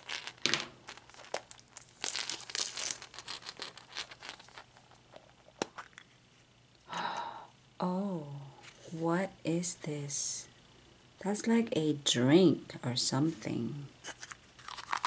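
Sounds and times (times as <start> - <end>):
paper bag crinkling: 0.0 - 5.4, 14.2 - 15.0.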